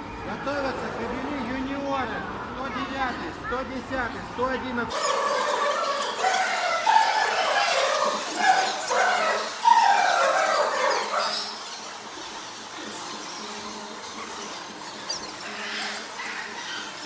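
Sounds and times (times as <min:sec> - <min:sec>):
dogs yelping and whining: 0:04.9 - 0:17.0.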